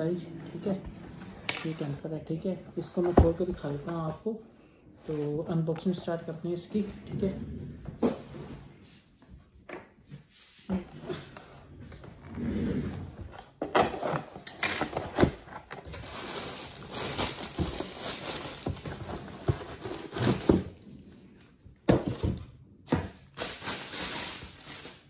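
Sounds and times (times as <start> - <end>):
plastic wrap crinkling: 15.8 - 20.0, 23.3 - 25.0.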